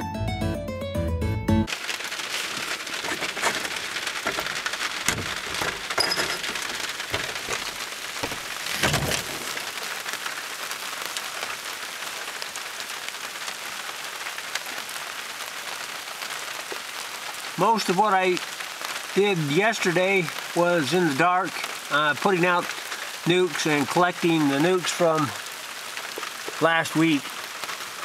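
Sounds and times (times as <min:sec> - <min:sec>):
steady rain falling: 0:01.7 - 0:28.0
knocks: 0:03.1 - 0:09.5.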